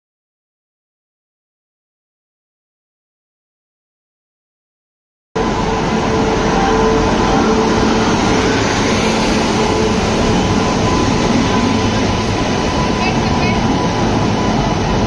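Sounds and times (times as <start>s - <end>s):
train rumbling on rails: 5.4s - 15.0s.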